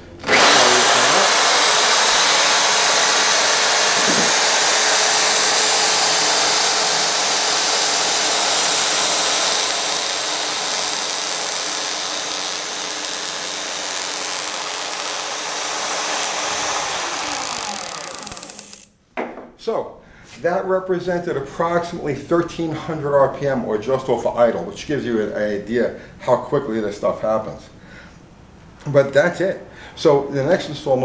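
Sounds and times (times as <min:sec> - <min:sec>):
cordless drill running: 0:00.2 - 0:18.9
ignition spark snapping: 0:05.4 - 0:18.9.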